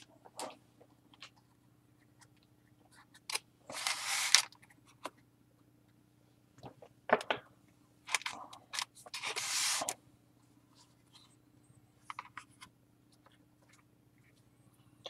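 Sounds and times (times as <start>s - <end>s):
cards rustling and sliding: 3.1s - 5.2s, 8.1s - 10.0s.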